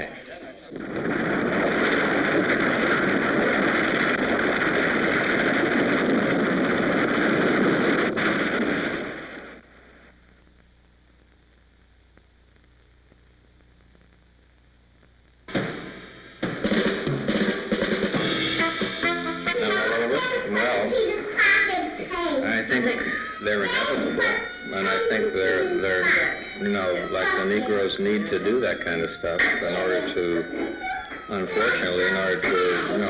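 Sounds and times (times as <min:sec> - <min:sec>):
sudden loud hit: 0:15.5 - 0:18.7
music with drums: 0:15.5 - 0:19.6.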